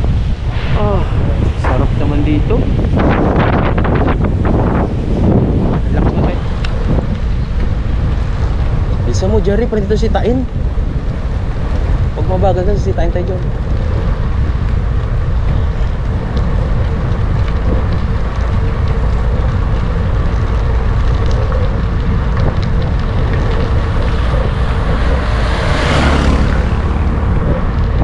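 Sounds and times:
wind rushing over microphone: 0:00.0 - 0:28.0.

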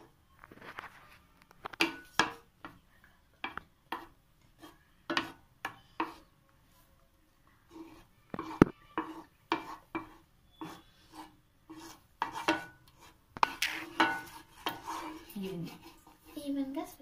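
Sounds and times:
wooden spatula scraping frying pan: 0:03.4 - 0:06.3, 0:07.7 - 0:17.0.

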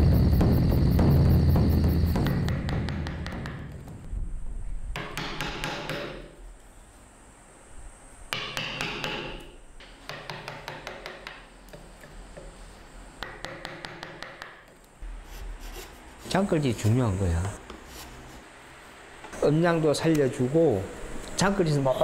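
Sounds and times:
chisel tapping into wood: 0:08.4 - 0:11.8, 0:13.2 - 0:14.7.

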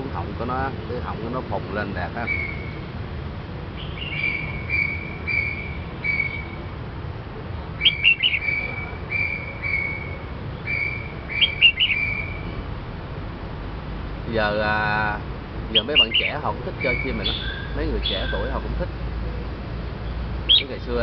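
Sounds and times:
bird singing whistled notes: 0:02.1 - 0:02.8, 0:03.8 - 0:06.7, 0:07.6 - 0:12.7, 0:15.7 - 0:18.6, 0:20.0 - 0:20.9.

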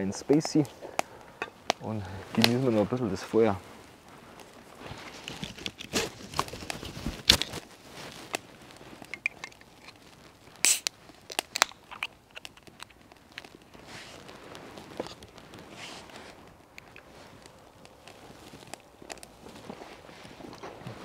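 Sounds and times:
wood fire crackling: 0:00.0 - 0:21.0
drink can tab cracking open: 0:09.0 - 0:10.0, 0:10.6 - 0:13.6.

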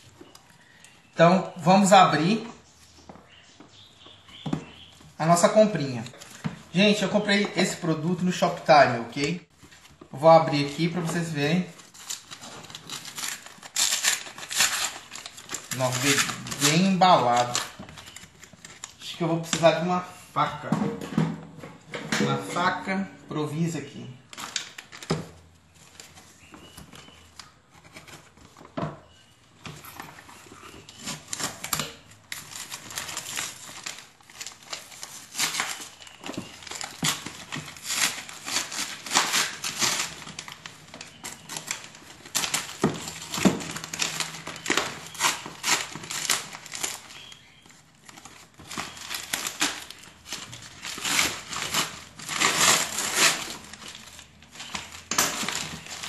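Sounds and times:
paper tearing and crumpling: 0:10.2 - 0:17.8, 0:30.9 - 0:47.4, 0:48.0 - 0:56.0.

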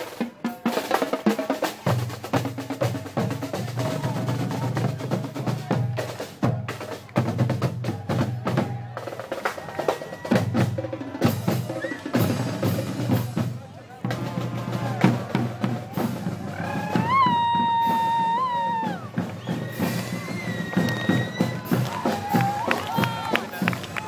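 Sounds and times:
snare drums: 0:00.0 - 0:24.0
bass drums: 0:10.3 - 0:24.0.

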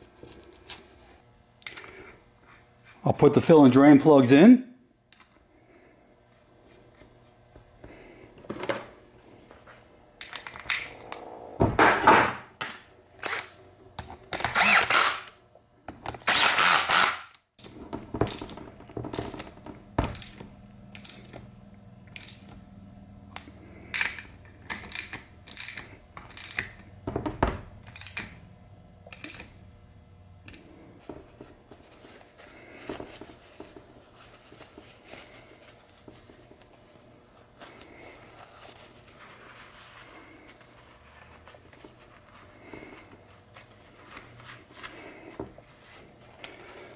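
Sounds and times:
ratchet wrench clicking: 0:24.7 - 0:26.7.

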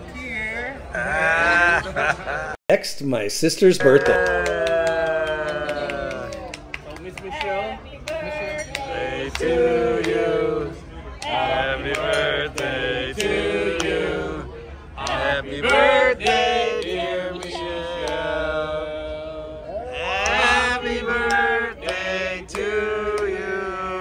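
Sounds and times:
men singing together: 0:07.5 - 0:24.0.

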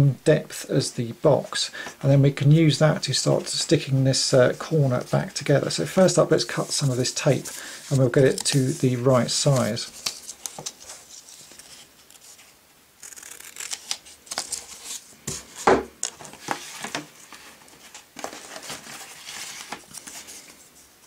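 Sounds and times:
paper and cardboard rustling: 0:04.6 - 0:21.0
scissors snipping paper tape: 0:13.0 - 0:14.5.

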